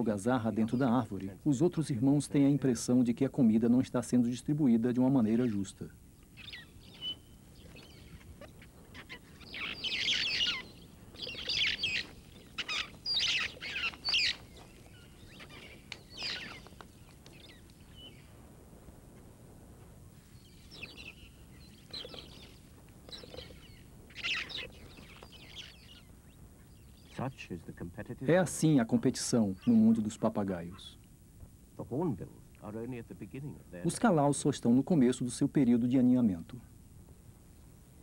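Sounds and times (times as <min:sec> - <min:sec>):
parrot chicks squawking: 0:06.4 - 0:17.6, 0:20.7 - 0:26.1.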